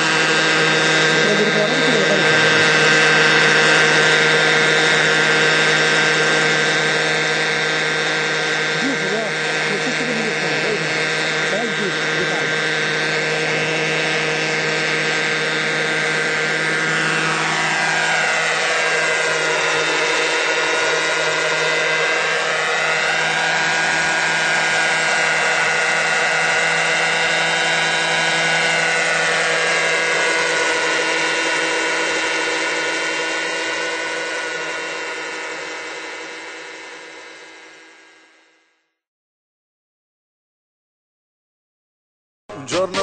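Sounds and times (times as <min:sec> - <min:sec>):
model helicopter running: 0:00.0 - 0:38.8, 0:42.5 - 0:43.0.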